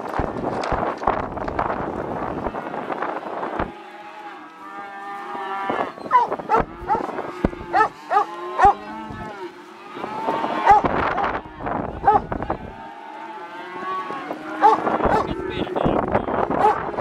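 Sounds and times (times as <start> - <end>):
calves bawling: 0.0 - 17.0.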